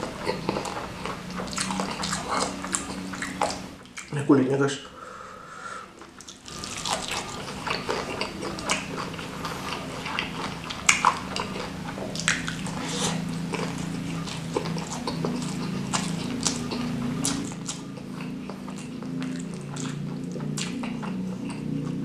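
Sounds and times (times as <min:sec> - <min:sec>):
wet chewing and lip smacking: 0:00.0 - 0:04.2, 0:06.0 - 0:22.0
crunchy bites: 0:06.3 - 0:22.0.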